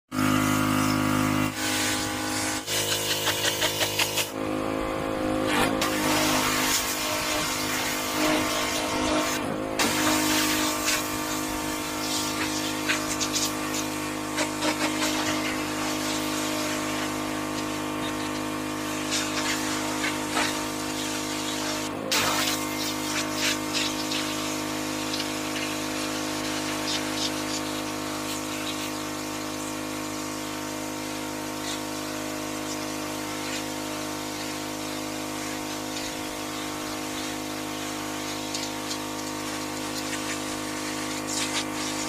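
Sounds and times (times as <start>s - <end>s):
pressure washer running: 0.1s - 42.0s
water jet hissing: 0.2s - 4.4s, 5.8s - 42.0s.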